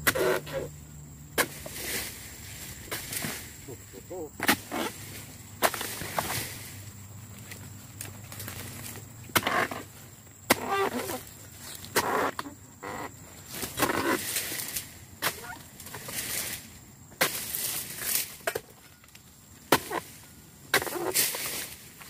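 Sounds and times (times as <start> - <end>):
chisel chopping palm fronds: 0.0 - 0.7, 1.4 - 2.2, 2.8 - 3.6, 4.4 - 6.7, 8.4 - 9.9, 10.5 - 11.3, 13.5 - 18.9, 19.6 - 22.0
frond rustling: 1.4 - 12.4.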